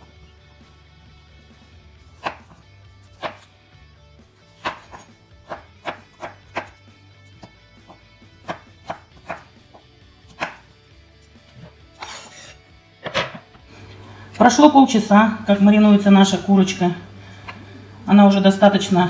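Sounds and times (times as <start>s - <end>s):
knife chopping on wooden board: 2.2s - 2.6s, 3.2s - 3.5s, 4.6s - 6.8s, 7.4s - 10.7s, 11.6s - 13.4s.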